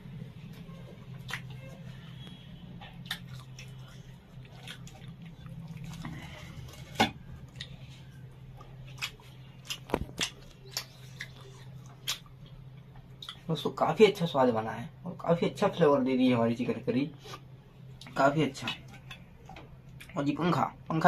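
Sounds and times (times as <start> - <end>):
person chewing food: 0.0 - 13.5, 17.3 - 20.2
steady low hum: 0.0 - 21.0
mouth clicks and smacks: 1.2 - 1.6, 2.9 - 5.4, 8.8 - 13.5.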